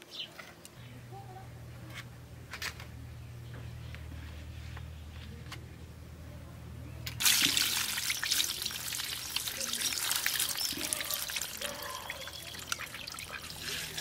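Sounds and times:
low steady hum: 0.0s - 14.0s
water splashing over crabs: 7.2s - 14.0s.

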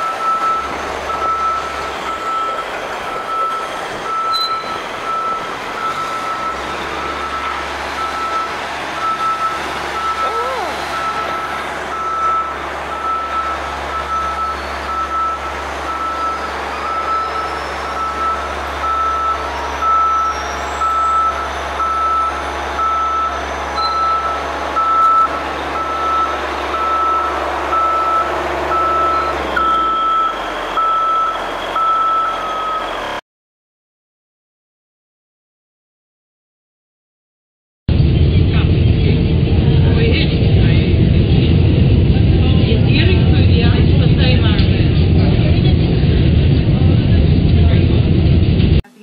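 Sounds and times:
back-up alarm beeping: 0.0s - 33.1s
street traffic rumble: 0.0s - 33.2s, 37.9s - 48.9s.

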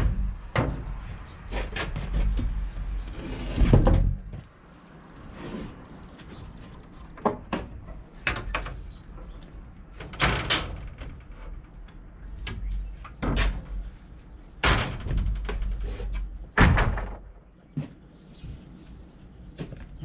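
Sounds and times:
wooden boards knocking and cracking: 0.0s - 4.5s, 14.6s - 17.5s.

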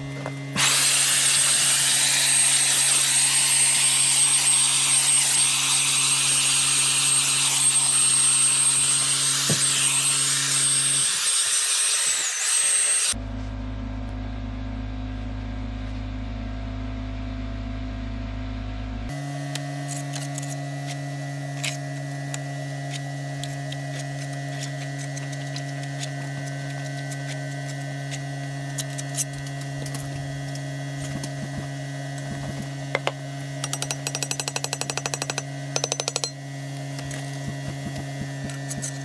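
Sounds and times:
steady machine hum: 0.0s - 10.9s, 13.1s - 39.0s
fast clicking rattle: 33.6s - 36.3s.

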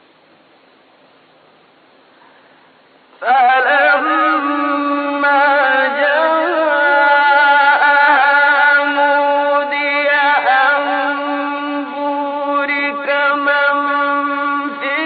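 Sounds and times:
man chanting recitation: 3.2s - 15.0s.

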